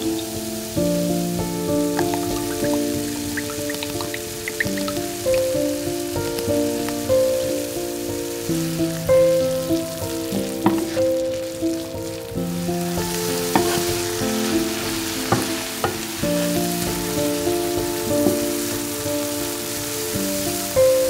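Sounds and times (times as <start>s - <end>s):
background music: 0.0s - 21.0s
vegetables sizzling in frying pan: 0.0s - 21.0s.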